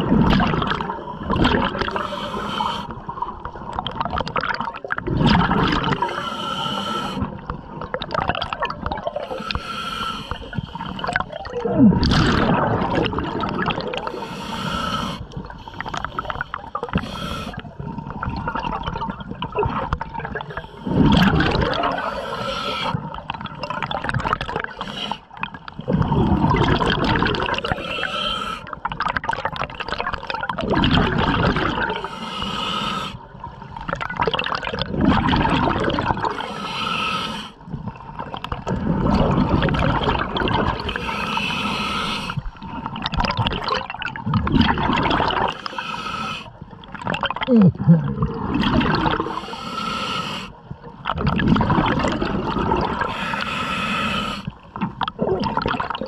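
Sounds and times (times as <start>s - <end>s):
rush of bubbles: 0.0s - 6.2s, 7.0s - 9.4s, 10.4s - 14.3s, 14.9s - 28.0s, 28.6s - 32.1s, 33.4s - 36.5s, 37.9s - 45.6s, 46.5s - 49.5s, 50.7s - 53.3s, 54.4s - 56.0s
hissing regulator inhalations: 1.8s - 2.9s, 6.0s - 7.4s, 9.2s - 11.1s, 14.0s - 17.8s, 21.9s - 23.1s, 24.6s - 25.4s, 27.6s - 28.8s, 31.9s - 33.3s, 36.3s - 37.6s, 40.8s - 42.5s, 45.5s - 46.6s, 49.2s - 50.6s, 53.0s - 54.6s.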